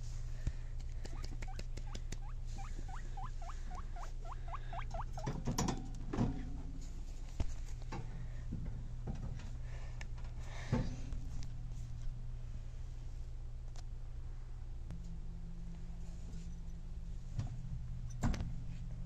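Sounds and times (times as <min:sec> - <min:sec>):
steady low hum: 0:00.0 - 0:19.0
guinea pig squeaking: 0:01.0 - 0:05.4.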